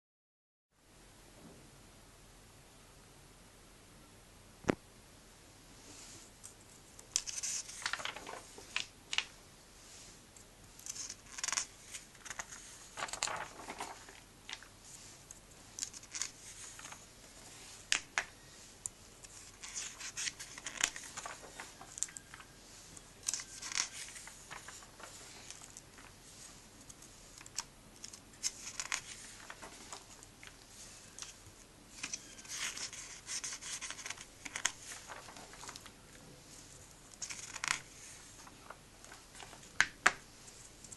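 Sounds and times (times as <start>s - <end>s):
pages rustling as turned: 6.0s - 10.2s, 10.8s - 40.9s
pages flicking: 7.2s - 9.3s, 10.8s - 14.7s, 15.7s - 18.3s, 19.2s - 22.5s, 23.2s - 31.4s, 32.0s - 36.0s.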